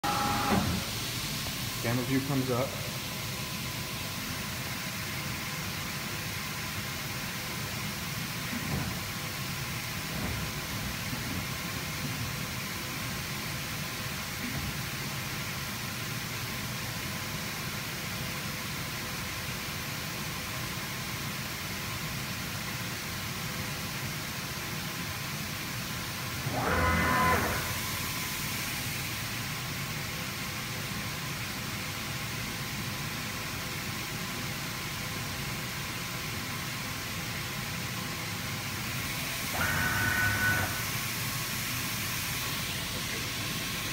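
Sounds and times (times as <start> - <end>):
machine noise hiss and rumble: 0.0 - 43.9
cutting machine hissing: 39.1 - 41.0
short high whine: 39.3 - 41.1.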